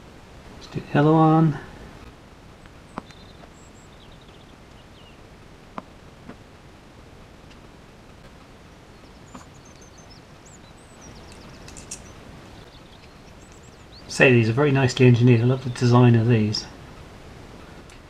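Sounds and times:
steady hiss: 0.0s - 18.0s
faint bird chirps: 2.6s - 5.2s, 8.6s - 16.0s.

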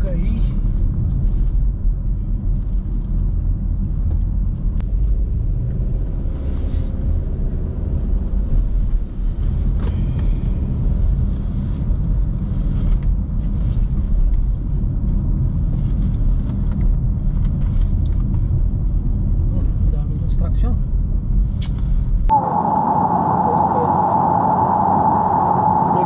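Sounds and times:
car road and engine rumble: 0.0s - 26.0s.

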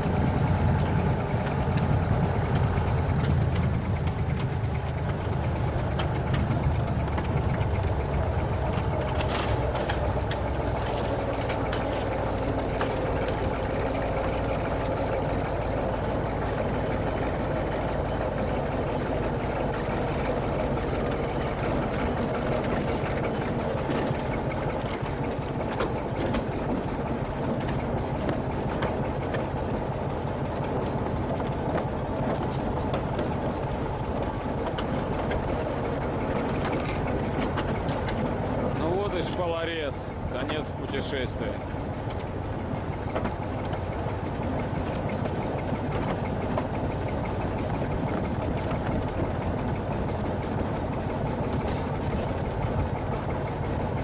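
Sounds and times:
train diesel engine running: 0.0s - 54.0s
wheels rumbling on rails: 0.0s - 54.0s
clicks and rattles: 8.7s - 13.7s.

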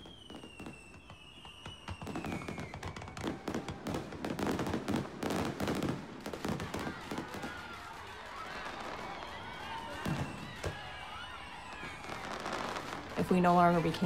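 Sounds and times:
high whistle sliding down: 0.0s - 3.6s
crackling distant blasts: 0.0s - 14.0s.

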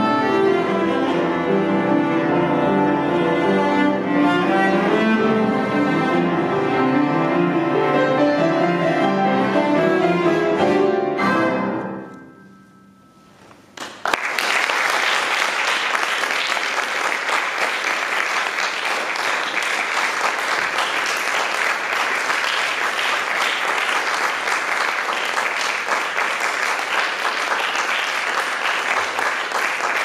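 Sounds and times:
audience applause: 13.8s - 30.0s.

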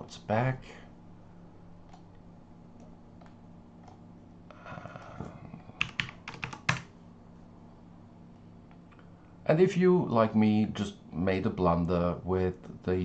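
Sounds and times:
computer keyboard keystrokes: 5.8s - 6.9s.

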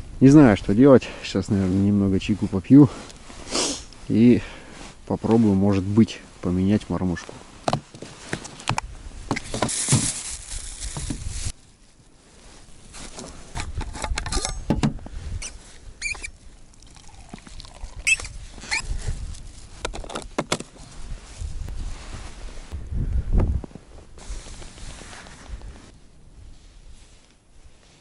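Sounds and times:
plastic bag rustling: 9.4s - 11.6s
tea pouring into a cup: 16.7s - 18.2s.

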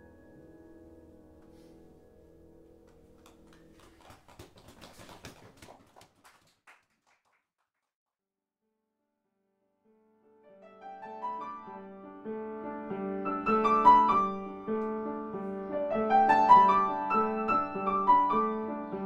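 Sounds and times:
piano chord ringing: 0.0s - 3.1s
soft piano music: 0.0s - 4.0s, 9.8s - 19.0s.

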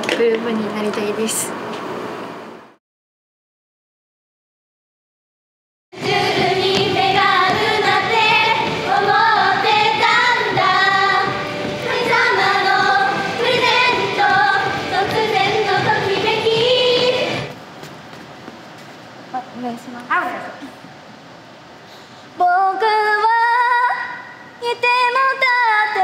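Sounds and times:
backing music: 6.0s - 17.6s
young women singing pop song: 6.0s - 17.6s, 22.4s - 26.0s.

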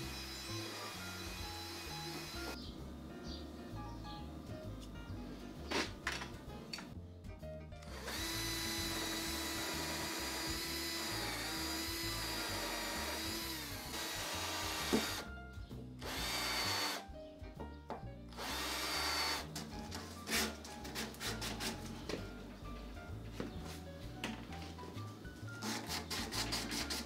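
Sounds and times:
cordless drill boring into wood: 0.0s - 2.6s, 7.9s - 15.3s, 16.0s - 17.0s, 18.4s - 19.5s.

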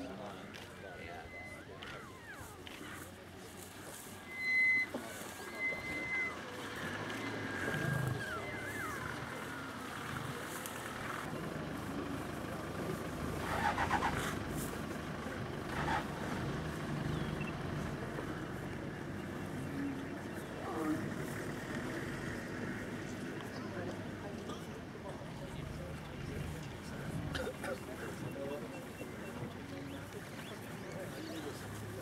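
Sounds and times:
vehicle engine idling: 0.0s - 32.0s
short high whistles: 4.2s - 6.4s.

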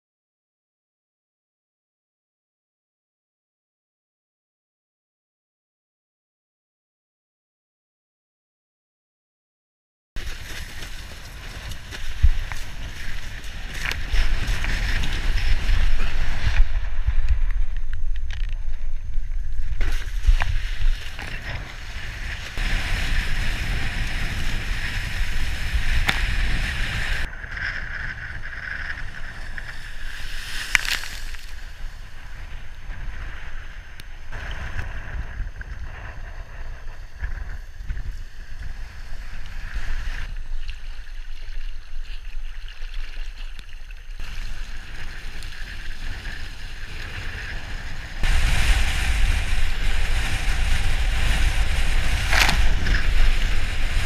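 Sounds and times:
wind rumbling on microphone: 10.2s - 54.0s
water rushing under board: 37.0s - 54.0s.

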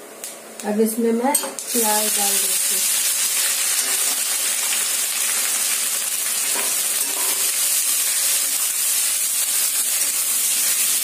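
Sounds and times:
onions sizzling in hot oil: 1.6s - 11.0s
metal spatula scraping pan: 6.5s - 7.6s.

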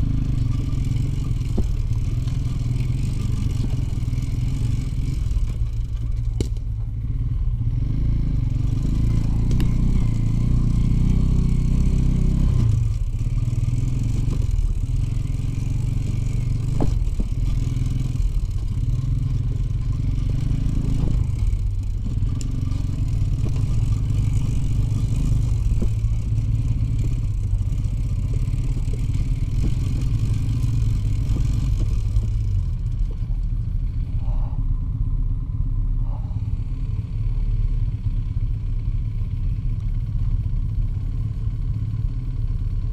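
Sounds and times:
clattering over rough track: 0.0s - 7.0s, 8.5s - 34.6s
two-stroke motorcycle engine: 0.0s - 42.9s.

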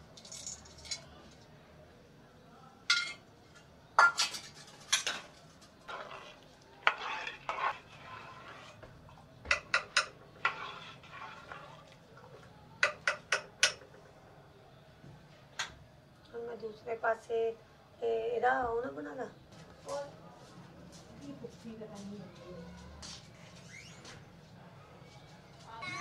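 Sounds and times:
metal spoon clinking in pot: 9.5s - 11.3s, 12.8s - 13.9s.

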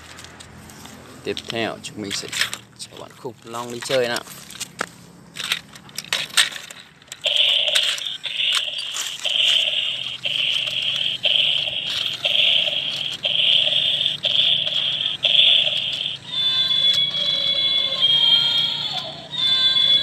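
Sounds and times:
toy switch clicks: 6.6s - 19.1s
buzzy electronic toy sound: 7.2s - 20.0s.

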